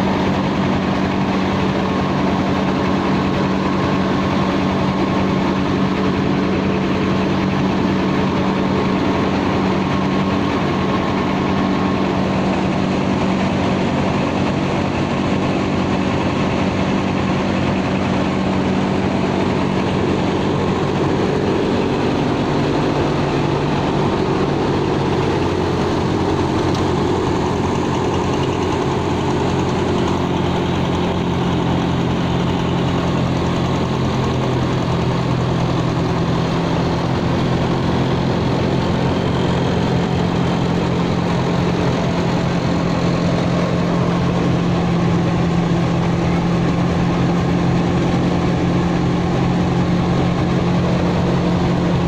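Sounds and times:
rice huller engine drone: 0:00.0 - 0:52.0.

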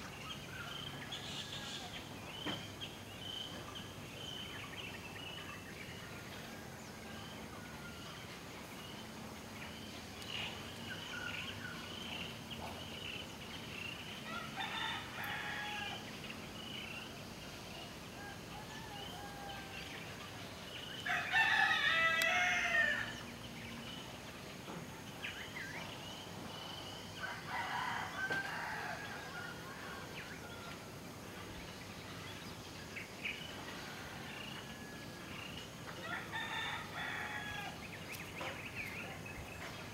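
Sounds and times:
rooster crowing: 0:18.2 - 0:19.9, 0:21.1 - 0:23.2, 0:27.2 - 0:30.7, 0:36.0 - 0:37.8.

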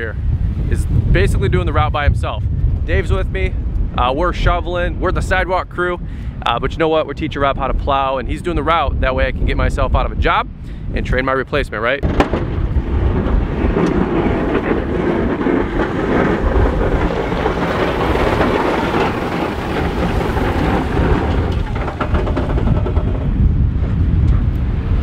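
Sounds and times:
wind buffeting microphone: 0:00.0 - 0:25.0
truck passing: 0:12.6 - 0:23.5
plow blade scraping slush: 0:12.8 - 0:23.3.

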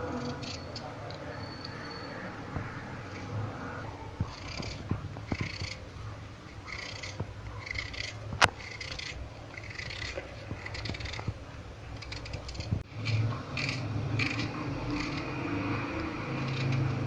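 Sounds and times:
knife cutting raw potato: 0:04.2 - 0:05.8, 0:06.6 - 0:11.4, 0:12.0 - 0:15.4.

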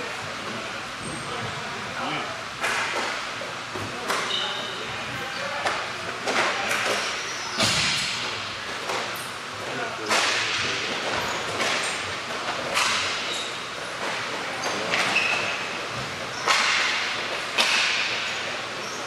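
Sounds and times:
hockey sticks and puck clacking: 0:02.6 - 0:04.4, 0:05.6 - 0:09.2, 0:10.0 - 0:19.0.

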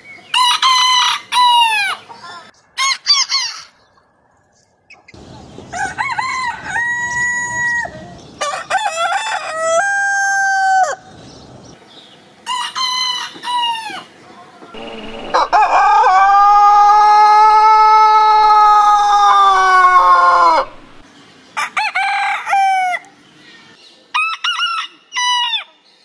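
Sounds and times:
roosters crowing: 0:00.3 - 0:02.0, 0:05.7 - 0:11.1, 0:12.4 - 0:14.1, 0:14.8 - 0:21.0, 0:21.6 - 0:23.0.

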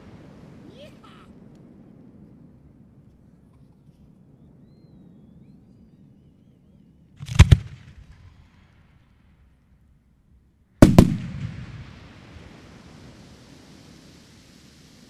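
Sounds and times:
firework hiss: 0:00.0 - 0:04.2, 0:10.8 - 0:15.0
fireworks bangs: 0:07.2 - 0:09.4, 0:10.8 - 0:15.0.

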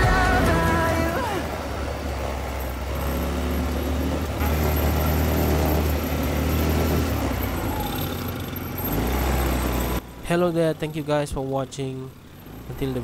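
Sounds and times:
atv engine drone: 0:00.0 - 0:13.0.

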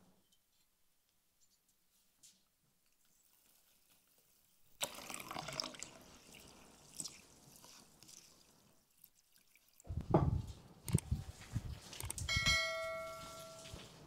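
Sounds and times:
water pouring into pan: 0:04.8 - 0:09.9.

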